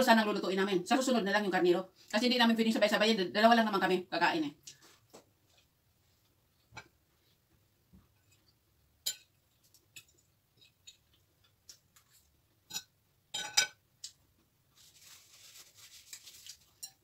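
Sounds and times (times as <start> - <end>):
cutlery clinking on plates: 9.0 - 11.1, 12.7 - 13.8, 16.8 - 17.0
soft rustling hiss: 14.0 - 17.0.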